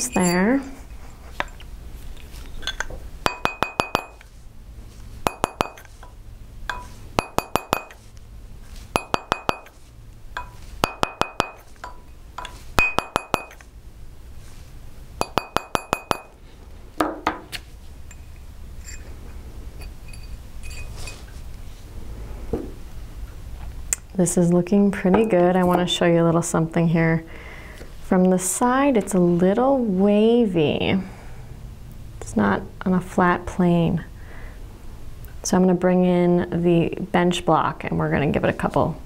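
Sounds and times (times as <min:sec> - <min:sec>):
mallet tapping metal ring: 0:02.7 - 0:04.2, 0:05.2 - 0:08.0, 0:09.0 - 0:09.8, 0:10.4 - 0:13.6, 0:15.2 - 0:16.4
soft handling sounds: 0:09.7 - 0:10.8, 0:17.5 - 0:21.9.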